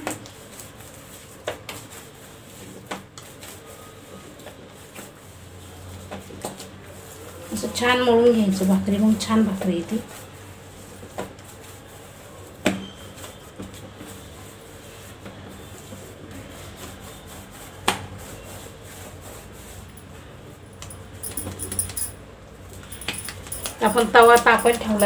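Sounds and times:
dough kneaded by hand: 0.0s - 21.2s
light metallic jingling: 20.7s - 22.2s, 22.8s - 25.0s.

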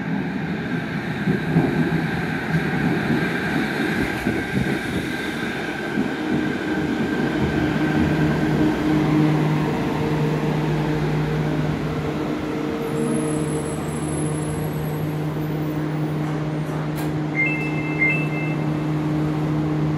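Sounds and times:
train rumbling and braking: 0.0s - 19.9s
faint high brake squeal: 13.0s - 15.1s, 17.3s - 18.8s.

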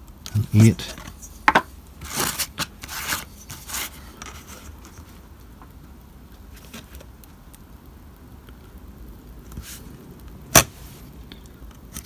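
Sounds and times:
card scraping across cutting mat: 2.0s - 4.6s.

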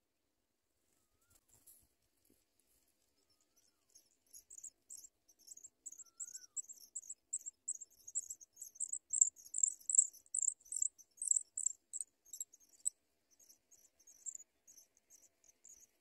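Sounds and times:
nestlings cheeping: 4.3s - 16.0s.

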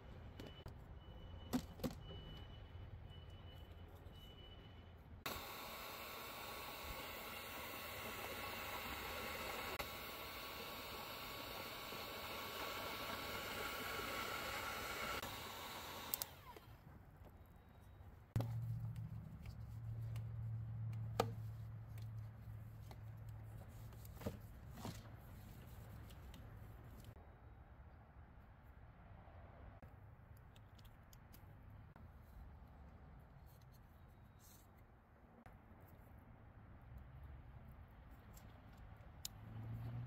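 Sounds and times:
heat gun blowing: 5.3s - 16.8s
sharp clicks: 16.0s - 16.7s.

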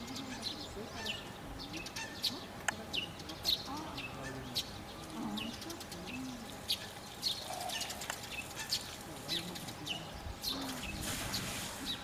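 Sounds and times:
rustling hiss: 5.0s - 12.0s.

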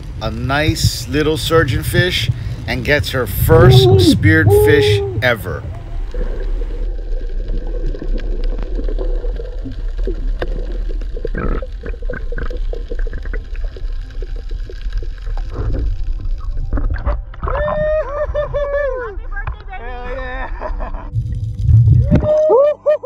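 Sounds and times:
muffled underwater rumble: 0.0s - 22.7s
sharp crackling clicks: 6.0s - 17.6s.

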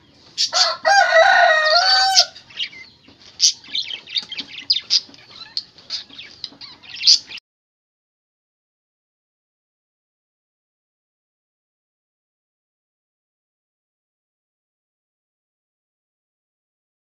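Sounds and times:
rooster crowing: 0.4s - 2.4s.

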